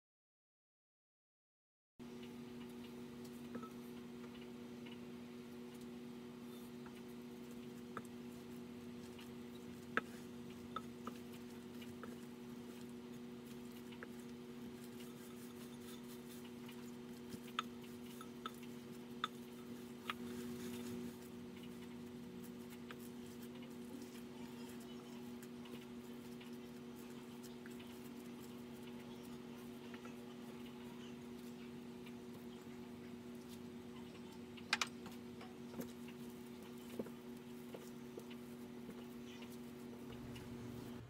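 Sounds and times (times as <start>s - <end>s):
steady low hum: 2.0s - 41.0s
dough squishing: 2.7s - 41.0s.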